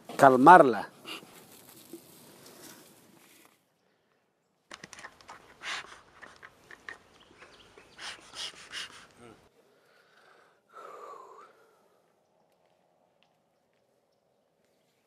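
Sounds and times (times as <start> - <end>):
bellows puffs: 5.3 - 6.5, 7.5 - 9.5.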